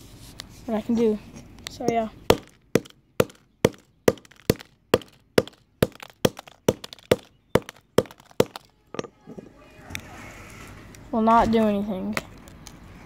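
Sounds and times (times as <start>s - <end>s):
sharp knocks on hard surface: 2.3s - 9.5s.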